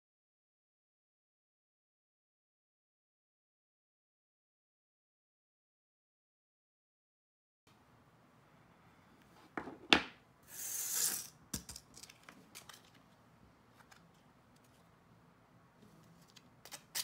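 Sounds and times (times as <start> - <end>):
tools knocking on tabletop: 9.6 - 10.2.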